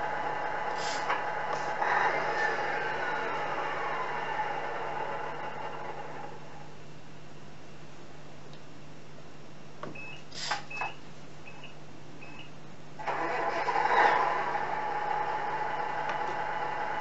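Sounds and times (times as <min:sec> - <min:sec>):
short electronic beeps: 0:10.0 - 0:12.5.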